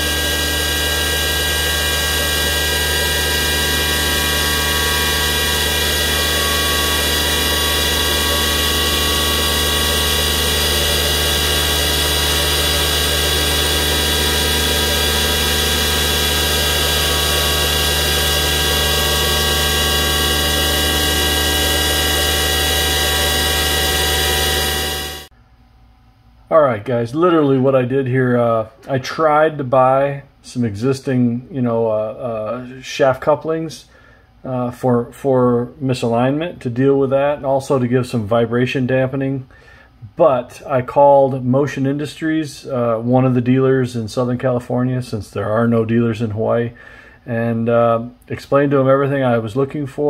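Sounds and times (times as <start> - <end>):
milling machine cutting metal: 0.0 - 25.3.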